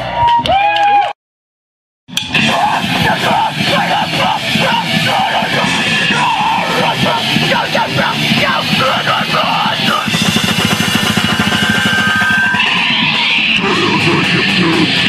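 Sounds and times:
distorted guitar: 2.1s - 15.0s
drums: 2.1s - 15.0s
yelled vocals: 2.3s - 10.8s, 11.6s - 15.0s.

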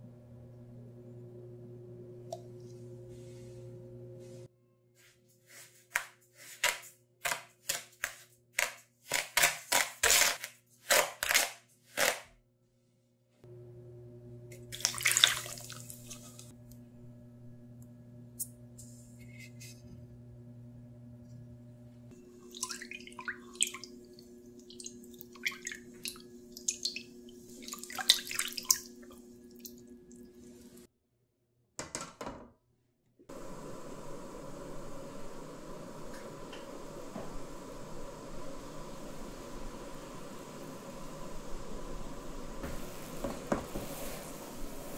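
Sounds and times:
small splashes and drips: 14.6s - 16.5s, 22.2s - 30.9s
water sloshing in a metal pot: 14.6s - 16.5s, 22.2s - 30.9s.

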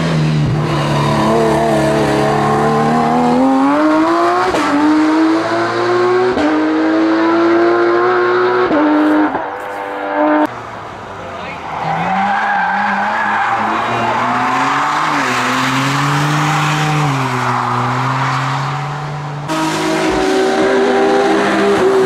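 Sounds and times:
race car engine accelerating: 0.0s - 10.5s, 11.9s - 22.0s.

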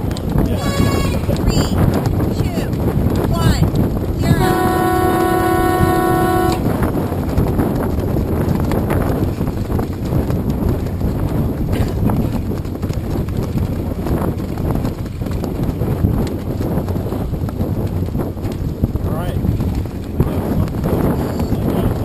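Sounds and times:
water noise: 0.0s - 22.0s
wind on microphone: 0.0s - 22.0s
horn blast: 4.2s - 6.8s.

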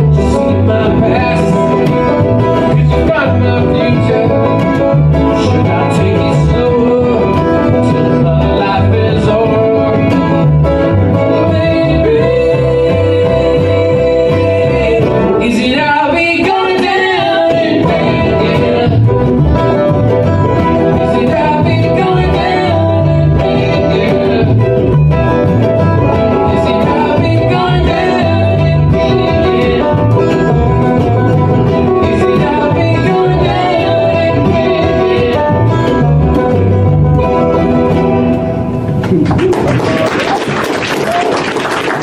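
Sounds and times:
bluegrass band playing: 0.0s - 42.0s
woman singing: 11.1s - 19.3s, 20.9s - 24.8s, 26.0s - 30.4s, 32.0s - 36.1s.

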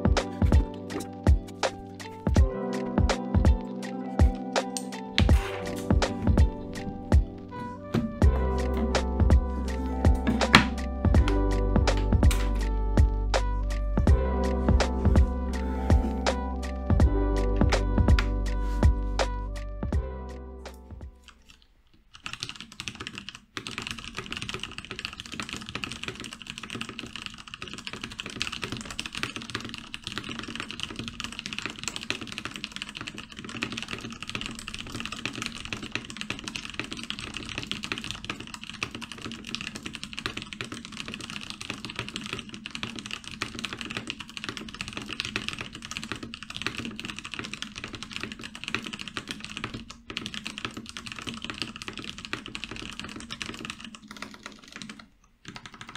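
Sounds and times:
fast mechanical keyboard typing: 21.2s - 55.9s.

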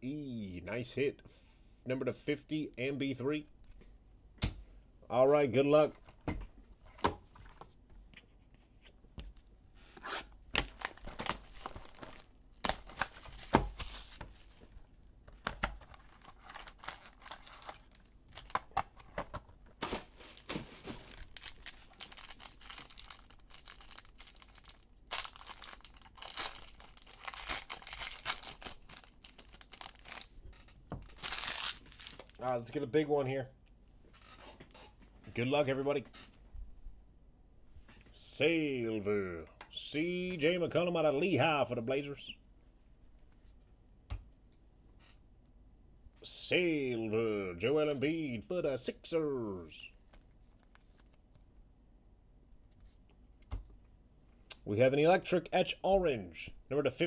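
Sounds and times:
foil wrapper tearing and crinkling: 10.6s - 14.7s, 15.9s - 18.8s, 19.8s - 30.4s, 31.1s - 32.4s.

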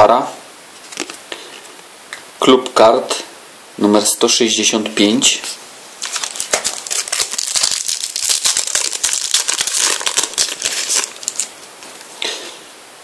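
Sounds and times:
foil packet crinkling: 6.0s - 12.1s.

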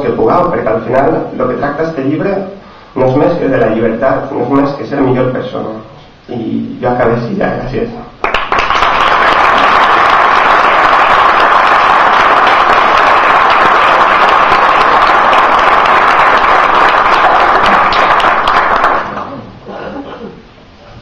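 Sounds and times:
audience applauding: 8.2s - 19.5s.

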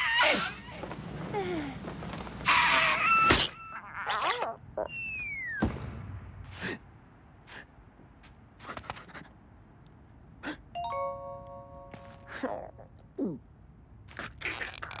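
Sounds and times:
falling whistle: 4.9s - 5.6s
thud: 5.6s - 6.5s
held musical chord: 10.8s - 12.3s.

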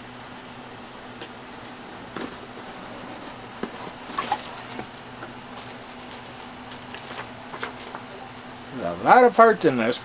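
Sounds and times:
faint steady hum: 0.0s - 10.0s.

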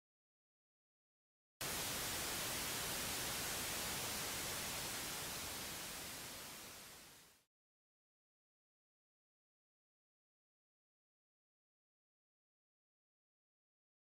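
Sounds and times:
static hiss: 1.6s - 7.5s.

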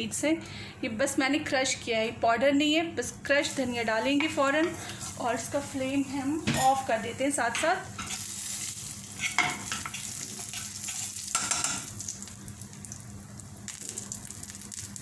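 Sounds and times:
hot oil sizzling in a frying pan: 3.4s - 15.0s
spoon stirring and scraping: 4.0s - 6.9s, 9.1s - 11.6s.

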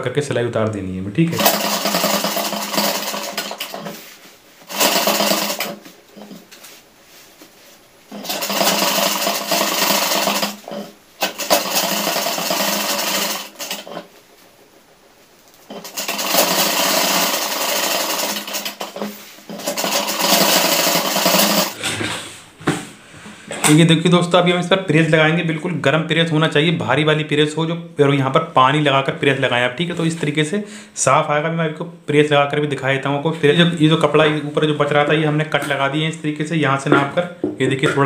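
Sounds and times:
electric sewing machine running: 1.4s - 4.0s, 4.6s - 6.4s, 8.1s - 14.1s, 15.7s - 21.8s.

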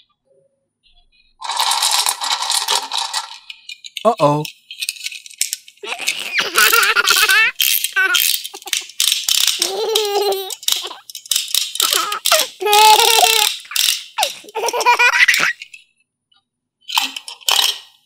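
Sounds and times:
chattering teeth toy clattering: 1.4s - 15.8s.

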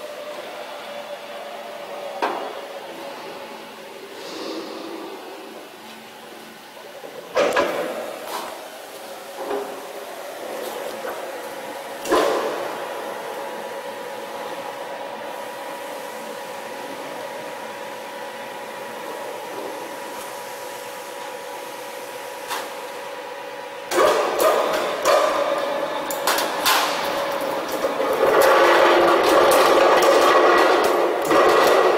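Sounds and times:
machine electric hum: 0.0s - 31.9s.

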